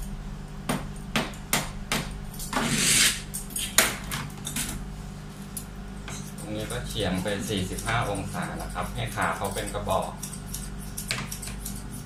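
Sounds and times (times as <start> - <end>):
scissors snipping fur: 5.6 - 12.0.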